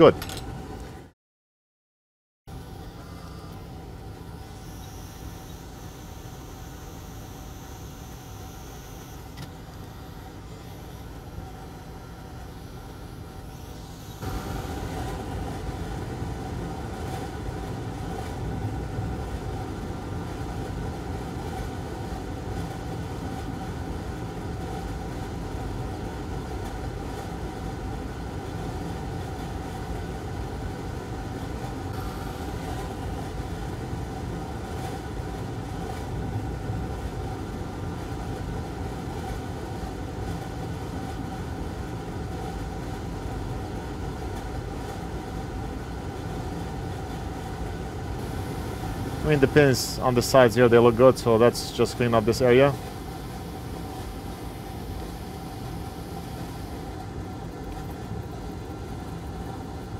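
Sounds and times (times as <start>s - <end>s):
hot-air tool blowing: 2.7s - 17.2s, 31.9s - 33.4s, 48.1s - 51.0s.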